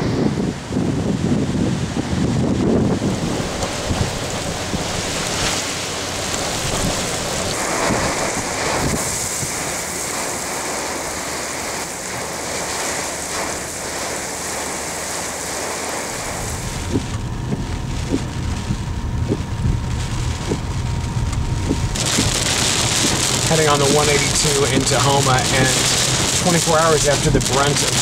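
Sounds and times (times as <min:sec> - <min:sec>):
heavy wind-driven rain: 0:00.0 - 0:28.0.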